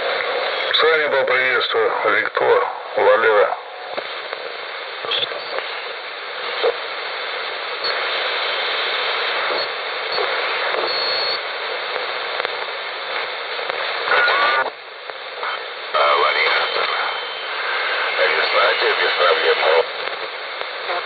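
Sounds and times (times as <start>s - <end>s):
radio static hiss: 0.0s - 21.0s
voice on radio: 0.6s - 3.7s, 13.8s - 14.7s, 15.4s - 21.0s
radio whistles: 5.0s - 6.7s, 7.7s - 12.4s, 13.8s - 14.7s, 15.4s - 20.0s.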